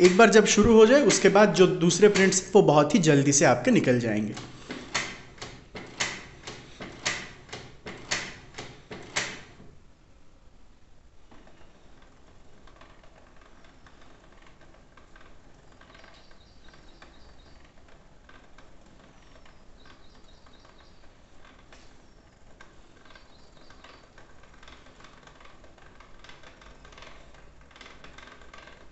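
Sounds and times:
printer mechanism clacking: 0:00.0 - 0:09.7.

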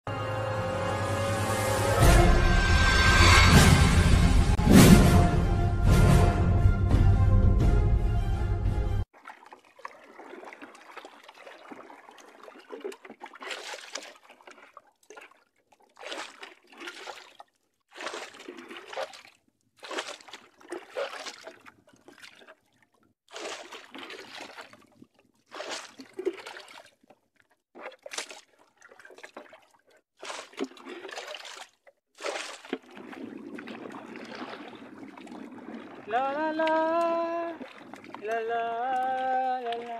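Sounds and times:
paddle splashing through water: 0:09.1 - 0:39.9.

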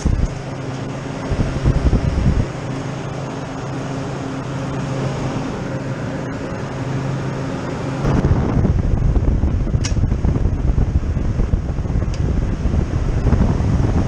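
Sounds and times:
freezer fan humming: 0:00.0 - 0:14.0
rough low rushing: 0:00.0 - 0:14.0
short sharp click: 0:09.8 - 0:10.0.

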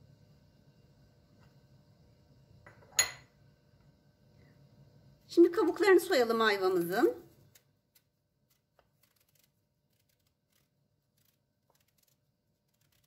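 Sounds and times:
knife scraping fruit skin: 0:08.5 - 0:13.0.

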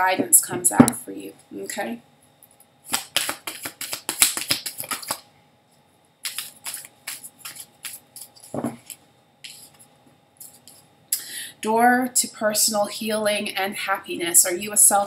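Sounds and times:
cards being shuffled: 0:02.9 - 0:05.2, 0:06.2 - 0:09.8.

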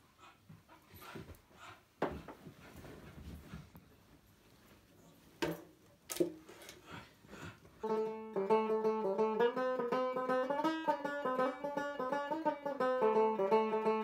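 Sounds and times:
banjo plucked melody: 0:07.8 - 0:14.0.

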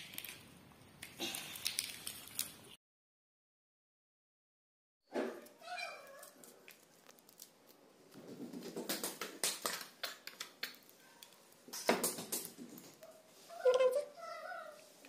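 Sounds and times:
juice sacs crackling wetly: 0:00.0 - 0:02.8, 0:06.0 - 0:08.3.

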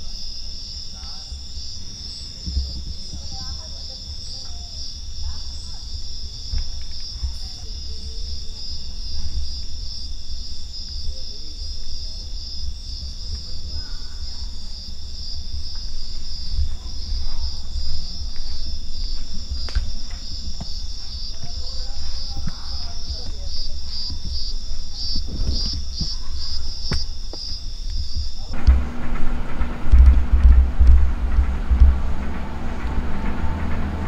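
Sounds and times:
crickets trilling: 0:00.0 - 0:34.0
low rumble: 0:28.5 - 0:34.0.

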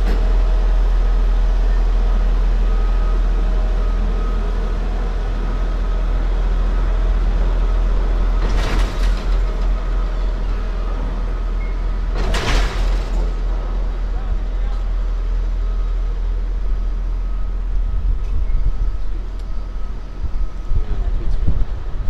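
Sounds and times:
heavy low rumble: 0:00.0 - 0:22.0
mechanical drone with faint whine: 0:00.0 - 0:22.0.

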